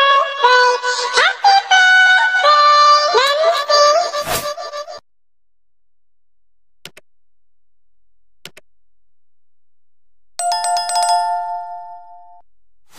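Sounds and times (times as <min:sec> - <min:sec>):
notification bell sound effect: 0:10.4 - 0:12.4.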